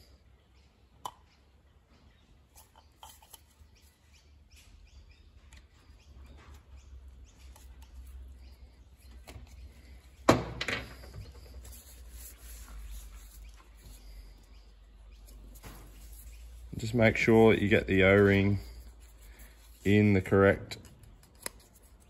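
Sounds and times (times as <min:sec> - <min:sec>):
small parts clicking and rustling: 0:02.5 - 0:03.7.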